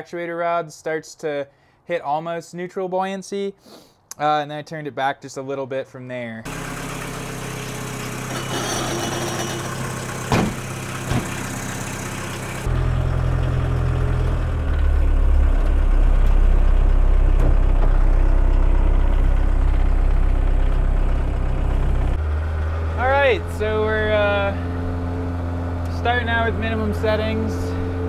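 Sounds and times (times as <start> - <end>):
diesel engine idling: 6.5 - 28.0
car hood slamming shut: 10.3 - 11.4, 17.4 - 17.9.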